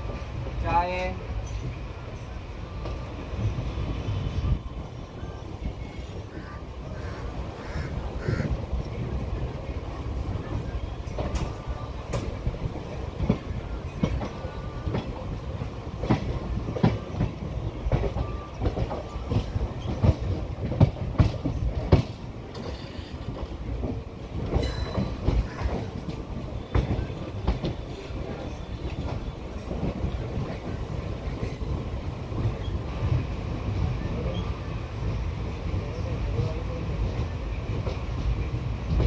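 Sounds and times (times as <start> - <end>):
train rumble: 0.0 - 39.0
train wheels clacking: 10.4 - 33.3.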